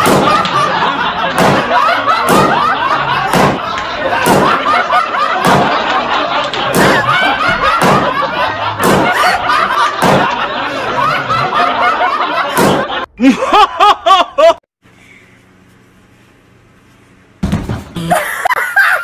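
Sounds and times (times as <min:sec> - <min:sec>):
balloons popping: 0:00.0 - 0:00.5, 0:01.4 - 0:02.6, 0:03.3 - 0:04.6, 0:05.4 - 0:05.8, 0:06.7 - 0:07.1, 0:07.8 - 0:08.0, 0:08.8 - 0:09.2, 0:10.0 - 0:10.2
people laughing and shouting: 0:00.0 - 0:14.6.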